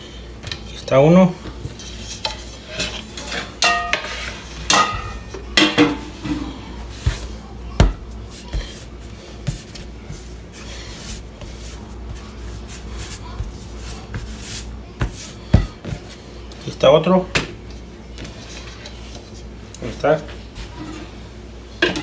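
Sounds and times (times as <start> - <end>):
metal kitchenware clattering: 1.8 - 6.6.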